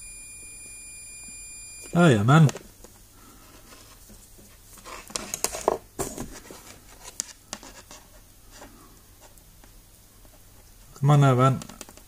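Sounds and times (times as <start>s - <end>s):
small clicks and rustles of handling: 6.4s - 10.9s, 11.5s - 12.0s.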